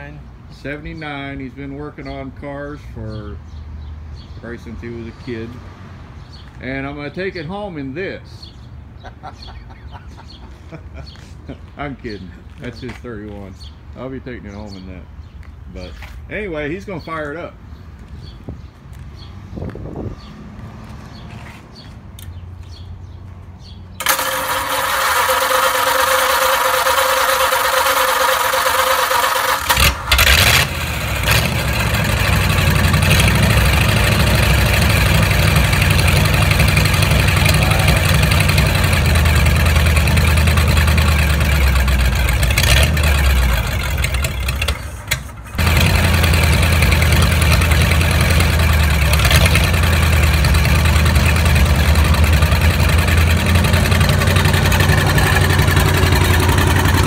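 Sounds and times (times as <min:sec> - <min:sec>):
starter motor cranking: 0:24.0 - 0:32.3
car engine running: 0:24.0 - 0:57.0.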